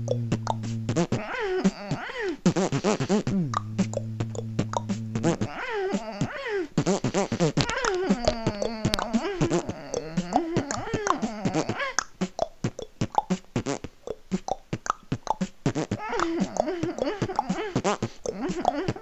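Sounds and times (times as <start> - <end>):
gliding vocal sounds: 0.0 - 12.0, 15.9 - 19.0
beatbox mouth-drum hits: 0.0 - 19.0.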